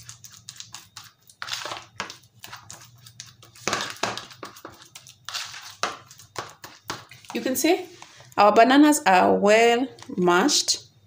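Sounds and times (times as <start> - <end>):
fork mashing bananas in bowl: 0.0 - 8.1.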